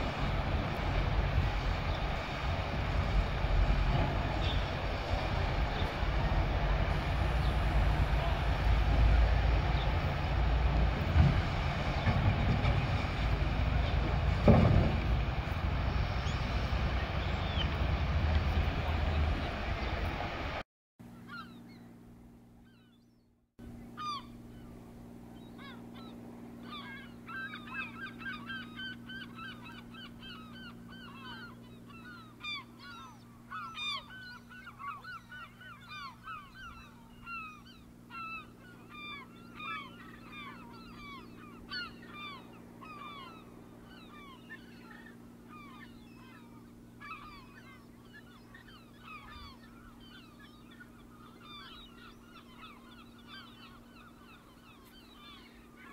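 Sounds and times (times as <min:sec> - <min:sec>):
flock of birds calling: 0:00.0 - 0:10.4, 0:25.4 - 0:55.9
steady low hum: 0:00.0 - 0:55.9.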